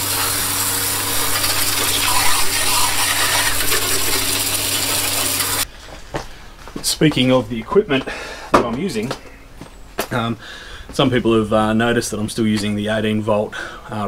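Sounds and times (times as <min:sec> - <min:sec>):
hose water spraying on mower: 0:00.0 - 0:05.6.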